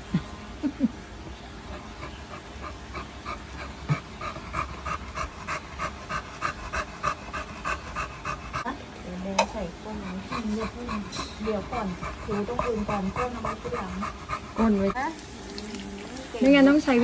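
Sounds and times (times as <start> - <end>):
dog panting: 1.6 - 8.8, 9.5 - 15.1.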